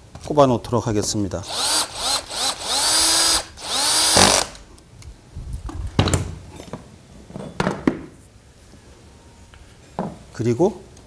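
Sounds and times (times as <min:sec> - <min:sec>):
cordless drill whining: 0:01.5 - 0:04.6.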